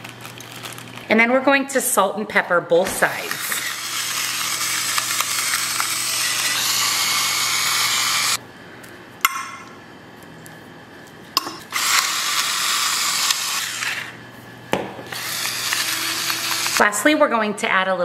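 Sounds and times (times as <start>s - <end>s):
electric grinder motor whirring: 3.1s - 8.4s, 11.6s - 14.2s, 15.1s - 16.9s.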